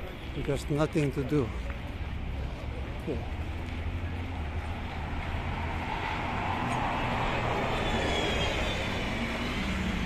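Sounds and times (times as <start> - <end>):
low hum of traffic: 0.0 - 10.0
vehicle passing: 2.6 - 10.0.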